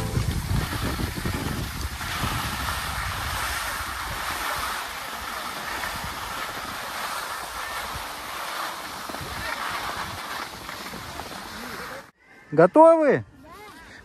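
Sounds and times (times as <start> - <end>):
wind on microphone: 0.0 - 12.0
skis gliding over snow: 0.0 - 12.1.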